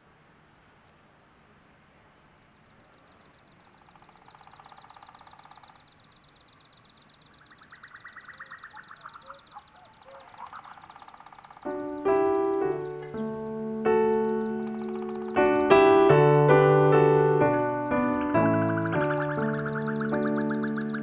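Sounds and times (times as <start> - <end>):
fast high keyboard trill: 13.9 - 21.0.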